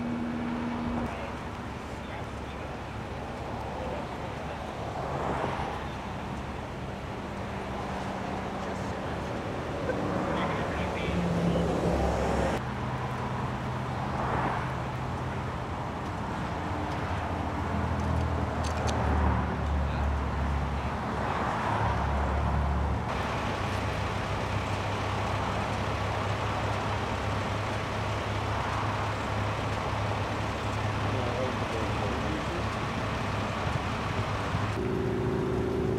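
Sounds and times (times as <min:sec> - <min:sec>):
freeway traffic passing: 0:00.0 - 0:35.9
engine idling: 0:23.1 - 0:35.9.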